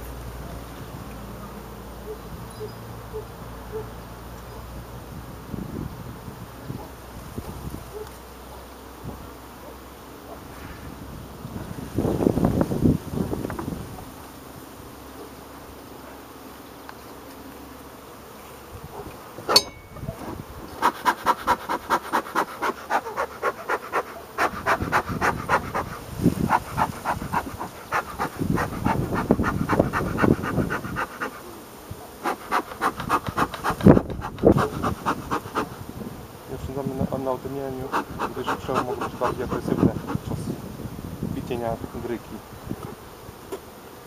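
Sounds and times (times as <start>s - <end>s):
bees humming: 14.0s - 40.6s
bellows puffing: 20.3s - 31.5s, 32.2s - 35.8s, 37.9s - 40.4s.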